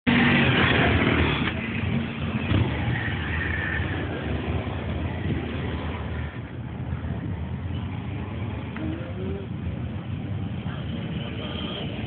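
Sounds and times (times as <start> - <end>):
motorcycles riding past: 0.1 - 8.7.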